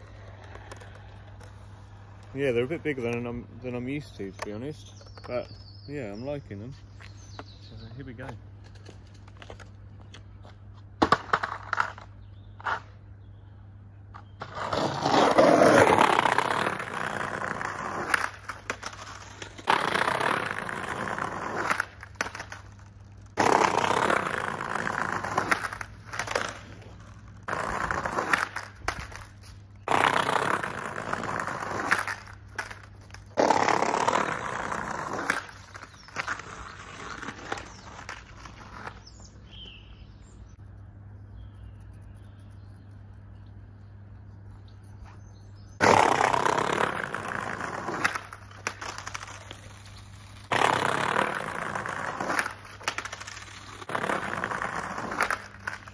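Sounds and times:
skateboard clack: 0.0 - 2.2, 10.9 - 12.9, 14.1 - 39.0, 45.8 - 55.9
skateboard wheels rolling on paving: 0.0 - 13.2, 13.9 - 40.6, 45.6 - 55.9.

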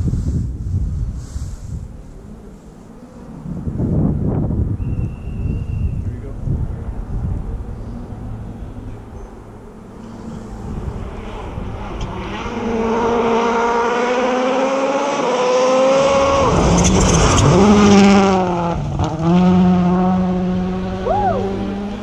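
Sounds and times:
rally car engine passing: 6.4 - 22.0.

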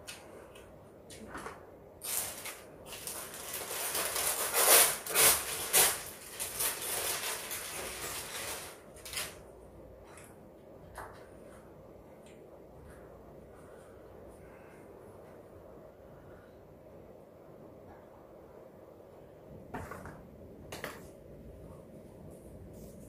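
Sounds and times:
plastic bag crinkling: 2.0 - 9.4.

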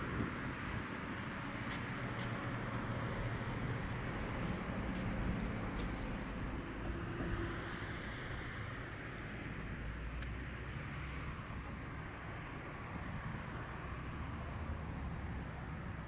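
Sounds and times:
footsteps on wet concrete: 0.5 - 5.6.

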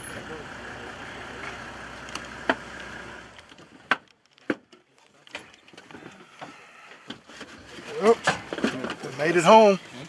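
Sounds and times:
vehicle engine running: 0.0 - 4.4.

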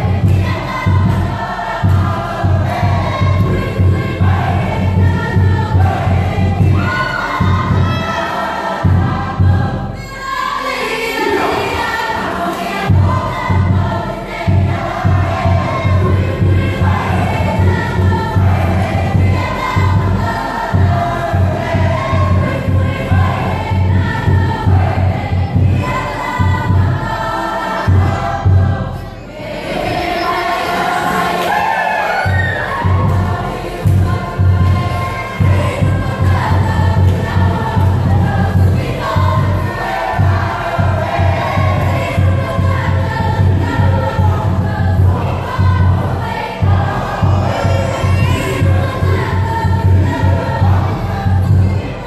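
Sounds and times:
low drum beat: 0.0 - 8.2, 12.9 - 27.2, 32.4 - 52.0
group of voices singing: 0.0 - 52.0.

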